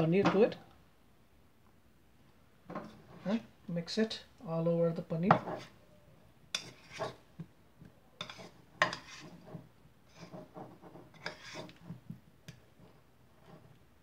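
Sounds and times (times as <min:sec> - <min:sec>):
metal spoon scraping a bowl: 0:05.3 - 0:05.8, 0:06.5 - 0:07.2, 0:08.2 - 0:12.0.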